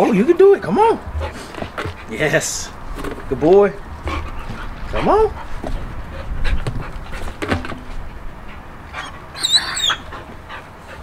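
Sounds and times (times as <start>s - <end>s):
puppy whining: 8.9s - 10.3s.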